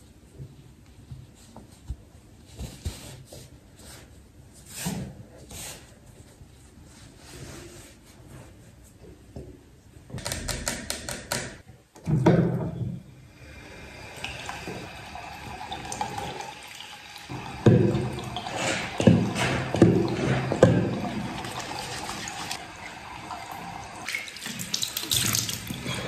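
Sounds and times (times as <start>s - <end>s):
tap water running into sink: 13.7s - 26.0s
soap pump knock: 17.3s - 22.0s.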